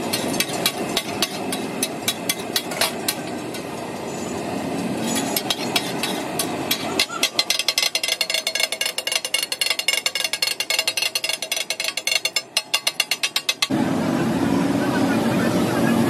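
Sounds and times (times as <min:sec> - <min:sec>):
metal spatulas striking griddle: 0:00.0 - 0:03.7, 0:05.0 - 0:13.7.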